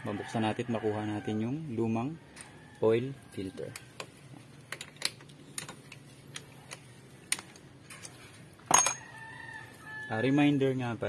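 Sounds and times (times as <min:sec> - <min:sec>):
ringing metal clink: 0:08.7 - 0:09.1.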